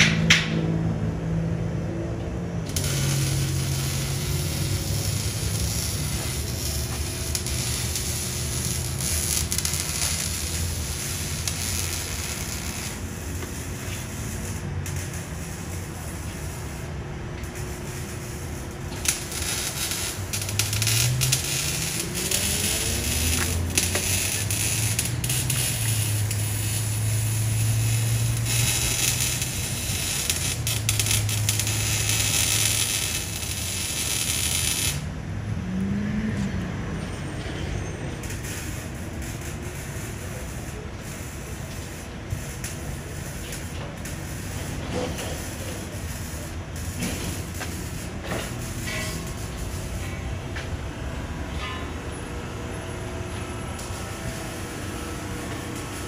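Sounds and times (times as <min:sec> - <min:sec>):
car exhaust drone: 0:00.0 - 0:37.0, 0:38.2 - 0:56.0.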